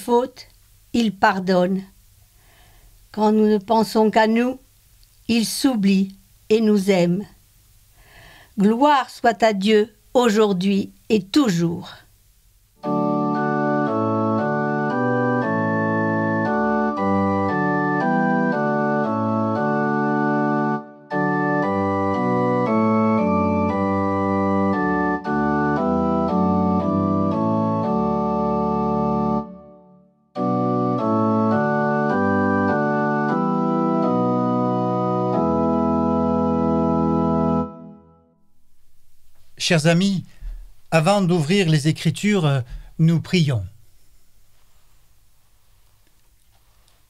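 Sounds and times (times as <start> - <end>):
organ playing held chords: 12.8 - 41.6.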